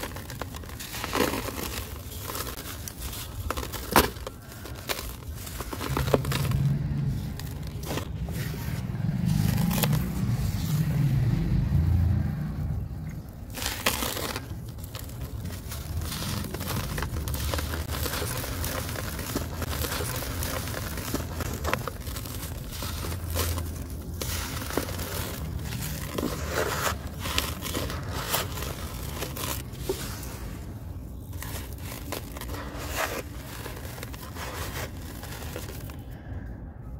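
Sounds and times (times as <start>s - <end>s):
soil crumbling by hand: 0.0s - 36.2s.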